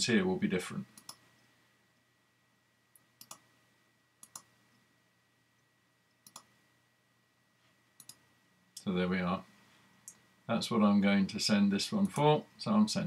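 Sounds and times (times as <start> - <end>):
computer mouse clicking: 1.0 - 1.2, 2.9 - 3.5, 4.2 - 4.6, 6.1 - 6.6, 8.0 - 8.3.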